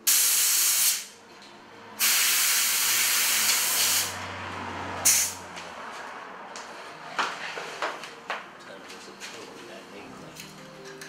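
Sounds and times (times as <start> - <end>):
compressed air blowing in bursts: 0.0 - 1.2, 2.0 - 4.2, 5.0 - 5.4.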